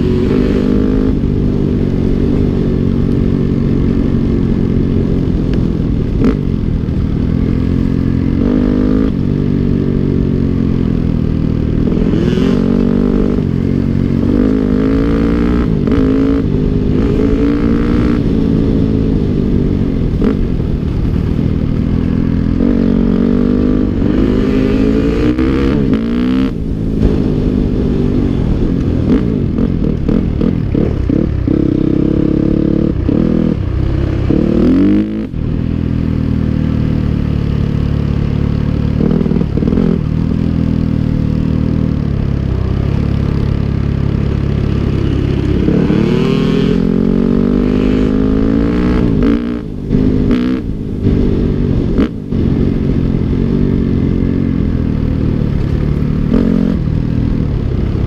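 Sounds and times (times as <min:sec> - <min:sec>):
dirt bike engine revving: 0:44.6 - 0:52.2.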